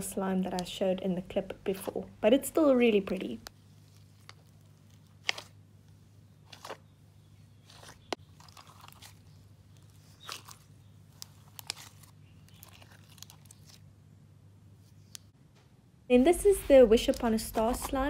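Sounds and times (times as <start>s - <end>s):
faint low hum: 0.0s - 18.0s
slime crackling and popping: 3.2s - 5.6s, 7.7s - 13.8s.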